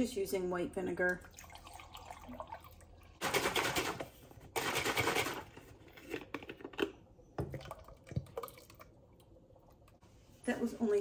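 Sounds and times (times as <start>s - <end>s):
liquid pouring into glass cup: 1.2s - 3.2s.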